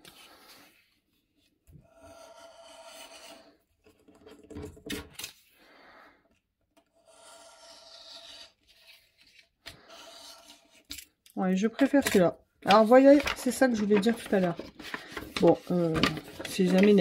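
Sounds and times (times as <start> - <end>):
blade scraping through paper: 7.0 - 10.9.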